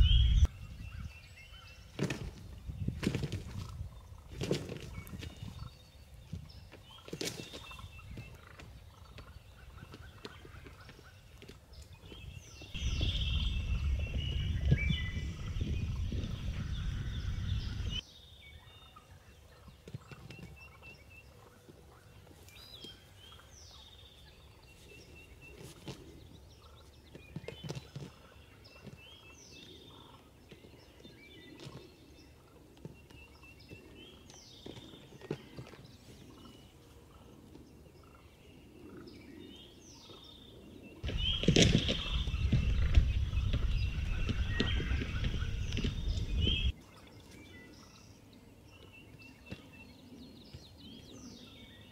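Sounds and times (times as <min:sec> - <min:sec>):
low rumbling noise: 0:00.0 - 0:00.5, 0:12.8 - 0:18.0, 0:41.0 - 0:46.7
songbirds chirping: 0:00.0 - 0:51.9.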